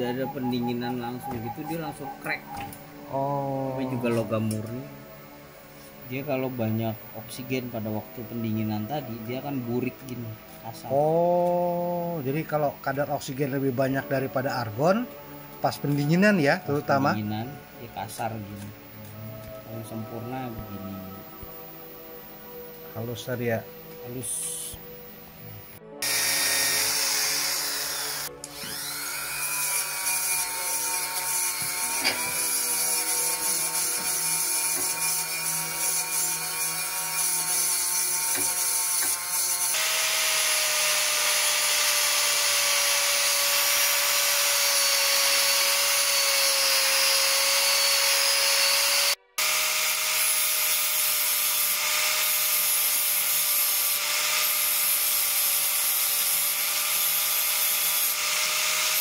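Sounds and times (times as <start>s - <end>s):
angle grinder grinding metal: 0.0s - 25.0s, 25.6s - 59.0s
electric drill grinding metal: 26.0s - 59.0s.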